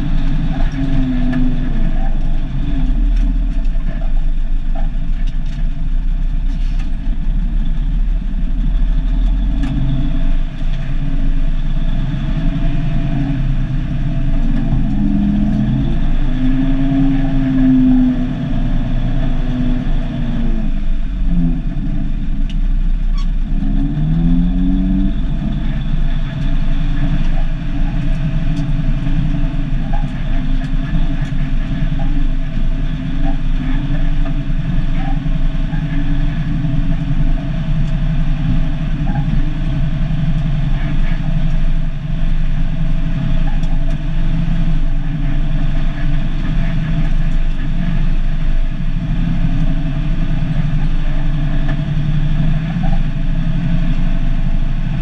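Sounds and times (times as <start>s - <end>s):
diesel truck engine running: 0.0s - 55.0s.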